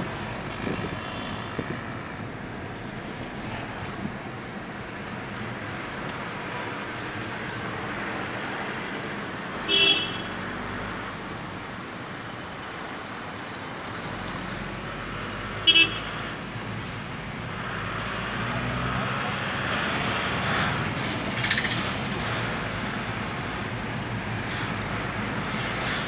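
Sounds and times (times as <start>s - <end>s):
road traffic noise: 0.0s - 26.0s
vehicle horn toots: 9.7s - 10.3s, 15.7s - 16.1s.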